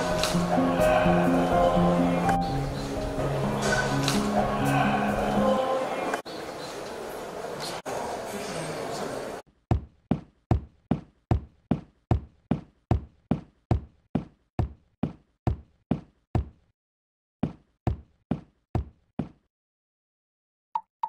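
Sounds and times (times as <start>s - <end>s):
crisp knock-like footsteps: 9.7s - 16.6s, 17.4s - 19.4s.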